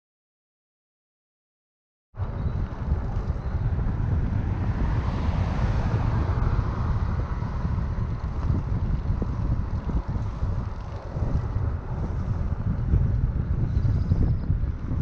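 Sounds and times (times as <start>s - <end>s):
road noise hiss: 2.2s - 13.2s
wind buffeting microphone: 2.2s - 15.0s.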